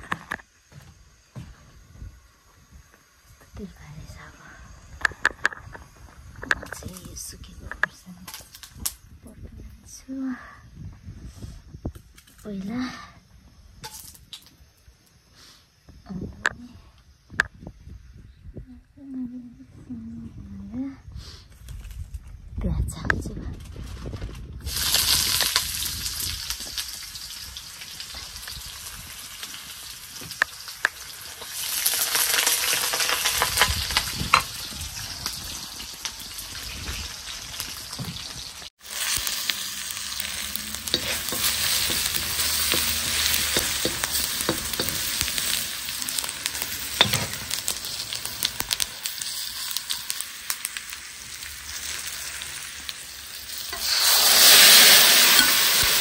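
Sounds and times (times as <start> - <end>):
food sizzling in hot oil: 24.6 - 56.0.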